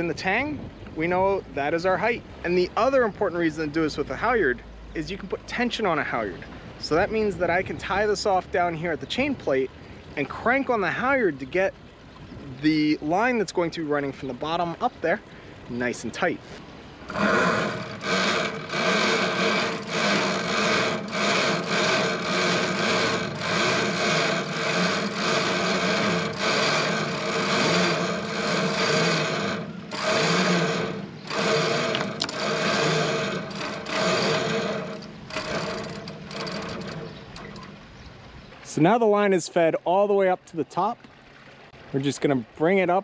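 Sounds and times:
rope rasping through block: 17.1s - 37.5s.

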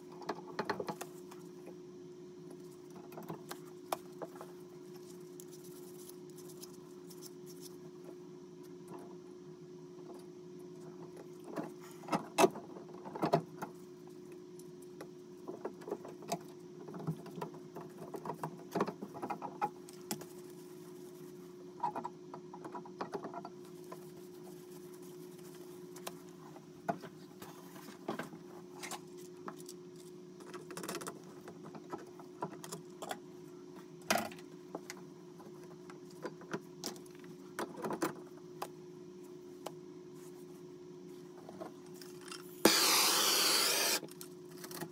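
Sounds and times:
steady low hum: 38.2s - 44.3s.

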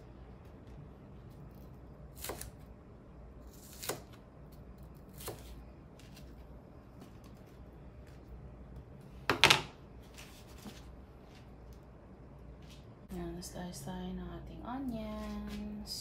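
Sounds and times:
knife slicing pepper: 2.2s - 2.6s, 3.4s - 4.2s.

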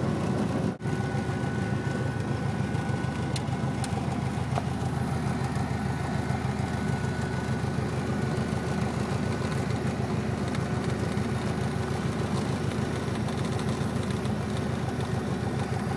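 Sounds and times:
light aircraft engine droning: 0.0s - 15.9s
faint high whine: 0.7s - 11.8s.

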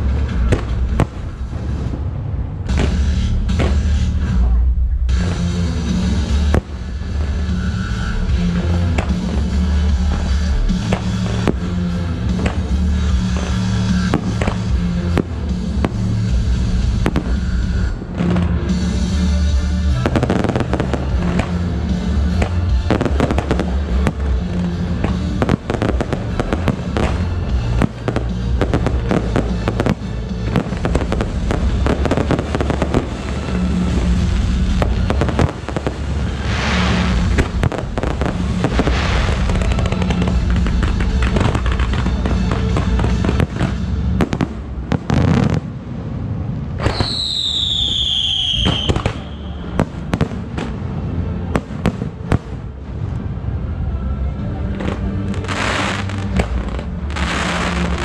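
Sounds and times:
fireworks bursting and crackling: 0.0s - 53.5s, 54.6s - 58.0s
background music: 0.0s - 58.0s
whistling firework falling in pitch: 46.8s - 50.3s.

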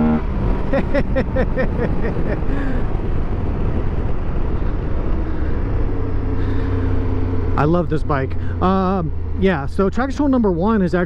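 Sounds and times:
motorcycle engine note: 0.0s - 0.5s
tyre noise on dirt road: 0.0s - 11.0s
wind rush: 0.2s - 7.0s.

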